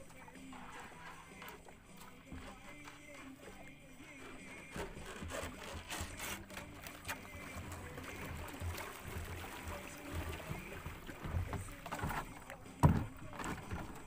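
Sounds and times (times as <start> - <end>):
water splashing around hull: 0.0 - 14.0
knocks against boat: 8.4 - 14.0.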